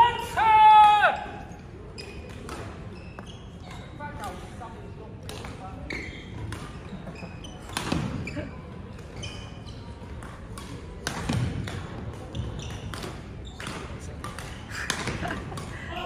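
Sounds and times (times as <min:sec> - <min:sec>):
court shoes squeaking: 0:01.2 - 0:15.9
rackets striking shuttlecocks: 0:10.1 - 0:15.7.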